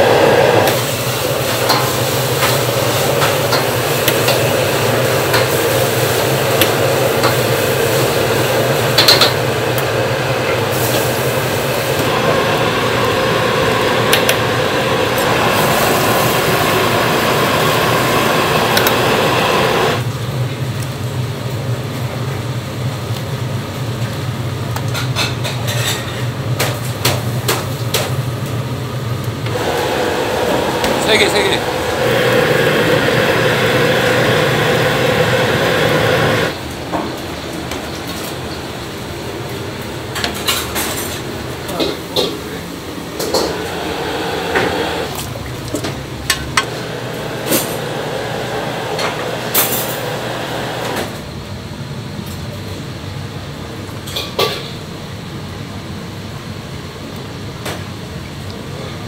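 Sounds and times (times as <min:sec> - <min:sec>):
gas burner hissing: 0:00.0 - 0:20.1, 0:29.4 - 0:37.0, 0:38.7 - 0:51.5.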